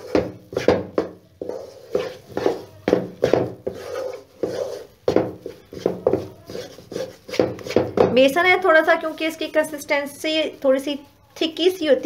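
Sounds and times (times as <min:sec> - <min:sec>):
wooden spatula scraping a wok: 0:00.0 - 0:09.9.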